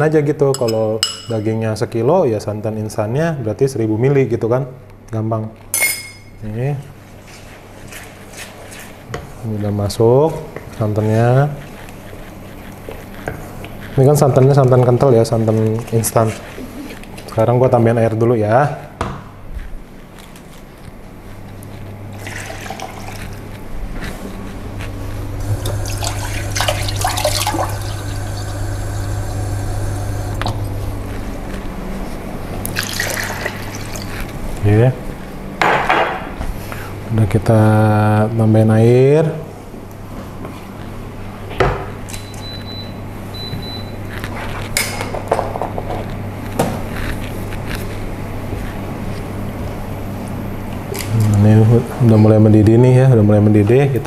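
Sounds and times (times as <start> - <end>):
glass jug clinking: 0.5 - 1.4, 5.8 - 6.4, 25.5 - 30.4
steady low hum: 9.4 - 35.6
tap water running into jug: 22.1 - 23.5, 25.4 - 30.6, 32.6 - 34.1.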